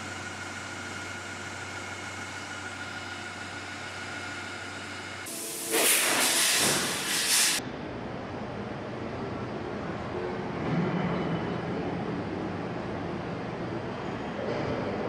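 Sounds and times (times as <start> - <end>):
machine hum with fixed tones: 0.0 - 7.7
loud hiss of coolant spraying: 5.3 - 7.6.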